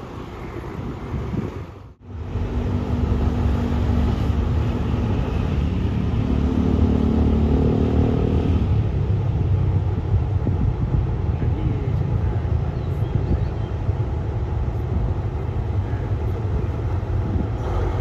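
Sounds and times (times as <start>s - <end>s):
diesel locomotive engine rumble: 0.0s - 18.0s.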